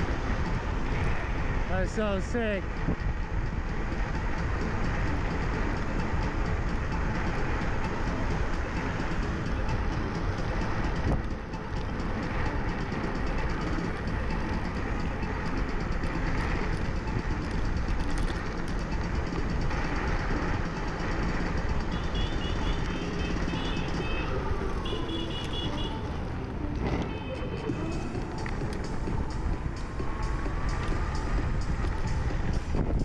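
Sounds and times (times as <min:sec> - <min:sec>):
road rumble: 0:00.0 - 0:33.0
wind on microphone: 0:28.2 - 0:33.0.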